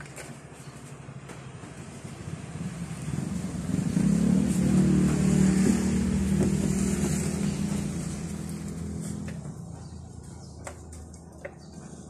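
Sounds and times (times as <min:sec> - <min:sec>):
vehicle engine humming: 0:00.5 - 0:12.0.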